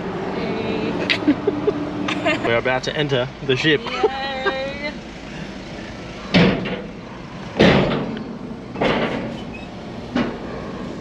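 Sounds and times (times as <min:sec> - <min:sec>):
vehicle low rumble: 0:00.0 - 0:11.0
wheels clunking over ramp: 0:06.3 - 0:10.5.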